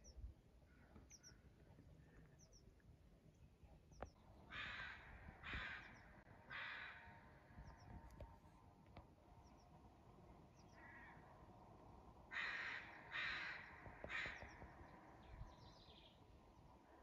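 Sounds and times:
small birds chirping: 0.0 - 4.8, 5.5 - 8.4, 9.3 - 11.2, 12.4 - 17.0
bird harsh calls: 4.5 - 8.0, 12.3 - 16.0.

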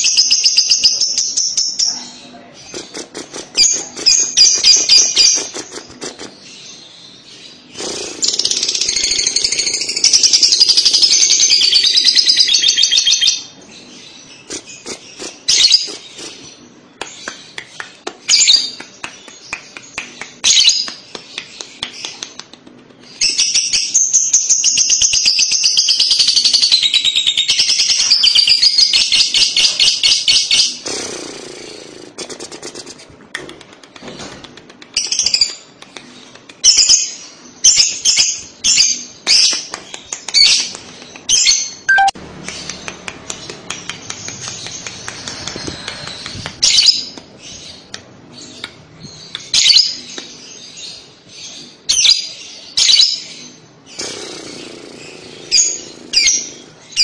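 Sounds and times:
lovebird chattering song: 0.0 - 22.4, 34.9 - 57.0
short sharp bird chirps: 41.9 - 42.7.

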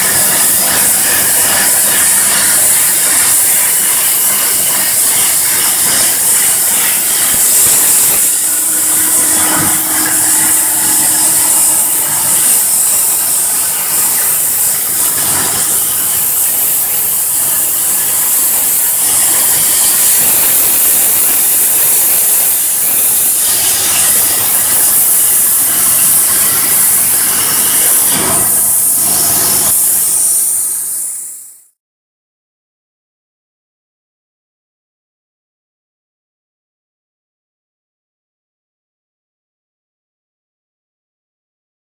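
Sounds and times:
plasma torch cutting metal hiss: 0.0 - 31.8.

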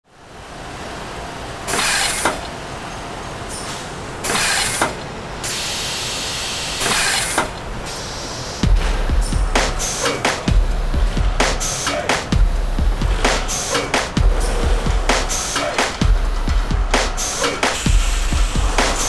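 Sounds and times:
steady background hiss: 0.1 - 19.0
sharp click: 3.6 - 5.0
short hissing bursts: 5.4 - 8.7, 17.1 - 19.0.

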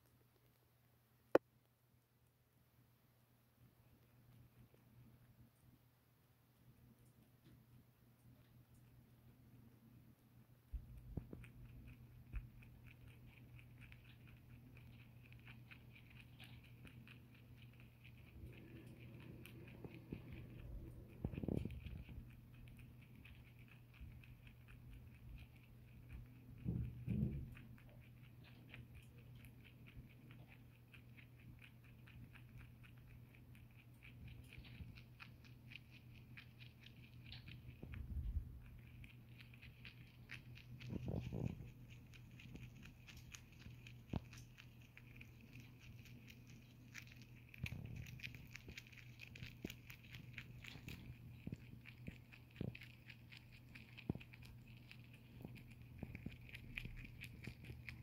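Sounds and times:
rabbit chewing dry hay: 0.0 - 58.0
soft low thumps: 37.7 - 38.8.

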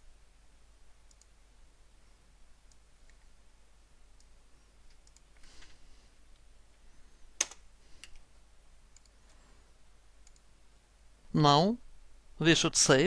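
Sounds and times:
computer mouse clicks: 1.1 - 1.3, 4.9 - 5.7, 7.4 - 8.3, 8.9 - 9.3, 10.2 - 10.5.

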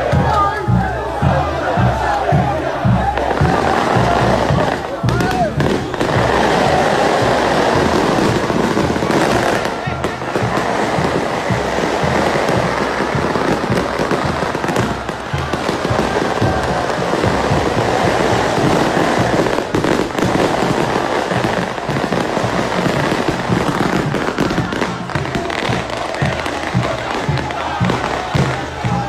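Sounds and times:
loud music: 0.0 - 29.0
fireworks crackling and banging: 3.2 - 29.0.

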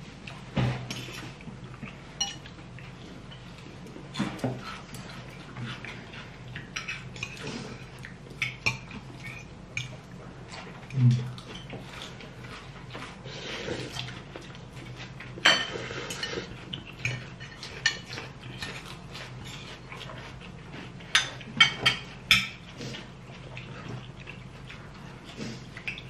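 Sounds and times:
cutlery clinking on plates: 2.2 - 2.5, 15.4 - 18.8, 21.1 - 22.6.

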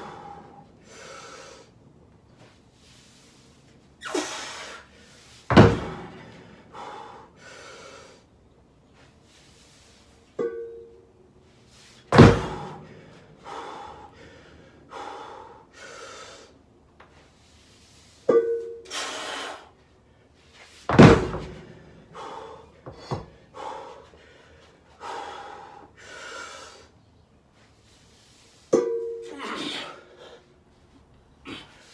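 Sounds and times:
hard rhythmic breathing: 0.0 - 1.9, 12.3 - 16.7, 21.3 - 27.0
heavy thud on concrete floor: 5.5 - 7.0, 12.1 - 13.2, 20.8 - 23.8.

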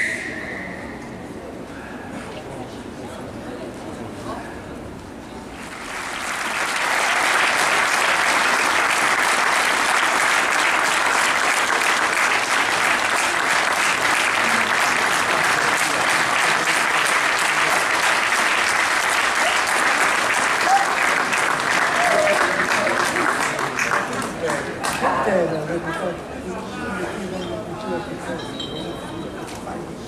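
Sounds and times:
stadium crowd clapping: 5.5 - 25.2.

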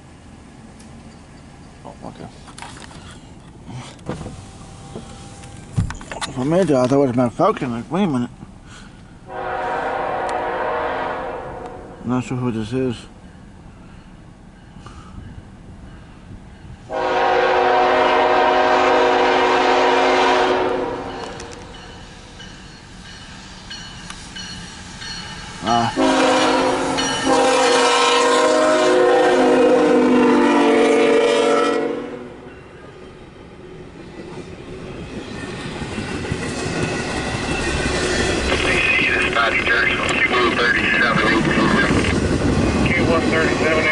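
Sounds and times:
locomotive air horn blast: 9.3 - 12.0, 16.9 - 21.2, 26.0 - 32.4
train wheels clattering on rails: 21.0 - 26.0, 34.0 - 43.2.

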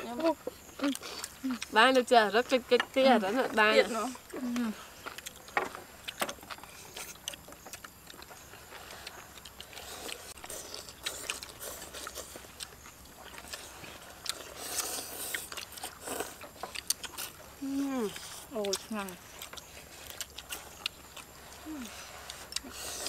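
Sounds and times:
people slurping noodles: 13.4 - 18.9, 21.4 - 23.0.

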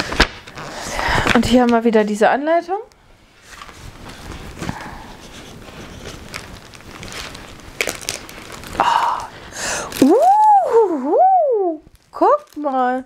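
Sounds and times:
packaging rustling: 3.4 - 10.8, 11.8 - 13.0.

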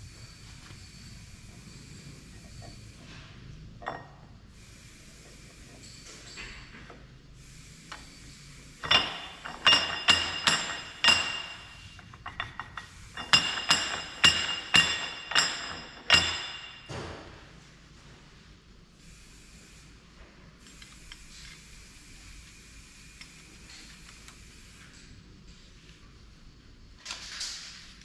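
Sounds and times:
metallic clinks of steel parts: 8.8 - 16.9.

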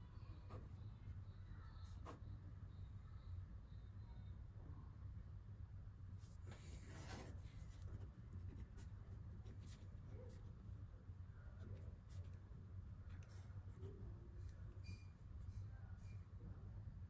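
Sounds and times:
low steady hum: 0.0 - 17.0
pen scratching on paper: 0.2 - 2.3, 6.5 - 16.2.

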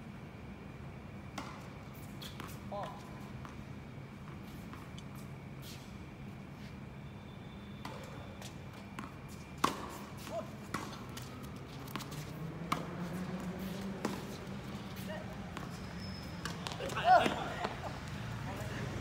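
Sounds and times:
tennis ball struck by rackets: 1.3 - 2.6, 8.9 - 15.8.

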